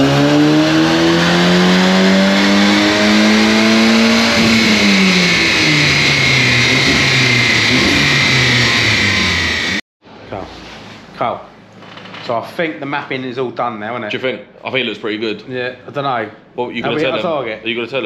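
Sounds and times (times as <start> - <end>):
car engine revving under load: 0.0 - 9.8
high whine: 2.1 - 9.8.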